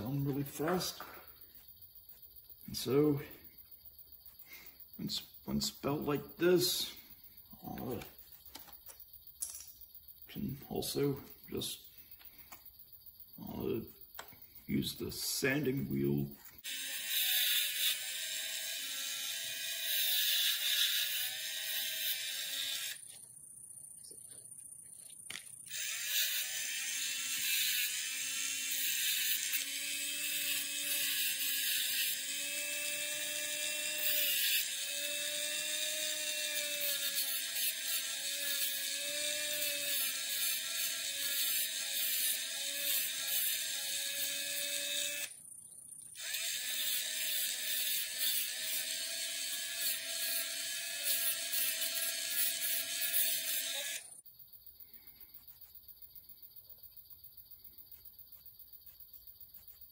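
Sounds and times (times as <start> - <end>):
rotary tool grinding metal: 0.0 - 1.7, 14.5 - 23.2, 25.7 - 45.3, 46.2 - 54.2.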